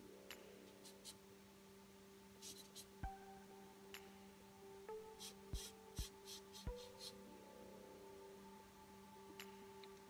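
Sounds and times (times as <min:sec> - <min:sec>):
faint steady hum: 0:00.0 - 0:10.0
marker scratching on paper: 0:02.4 - 0:02.9, 0:05.2 - 0:07.2.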